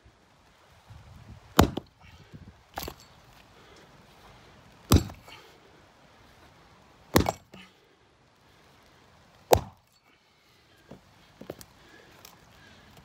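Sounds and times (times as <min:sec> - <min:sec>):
axe chopping timber: 0:01.5 - 0:02.0, 0:02.8 - 0:03.0, 0:04.9 - 0:05.4, 0:07.1 - 0:07.6, 0:09.5 - 0:09.9.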